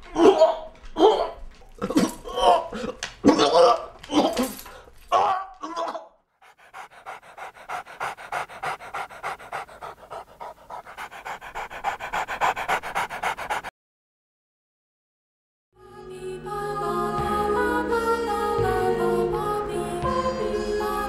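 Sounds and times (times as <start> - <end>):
dog panting: 6.4 - 13.7.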